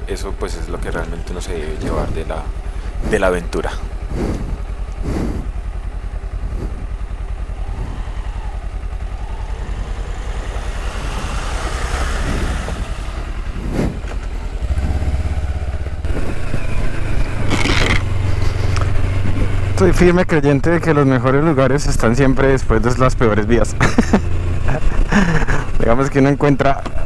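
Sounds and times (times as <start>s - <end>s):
motorcycle engines running: 0.0s - 27.0s
motorcycle splashing through water: 7.4s - 15.8s.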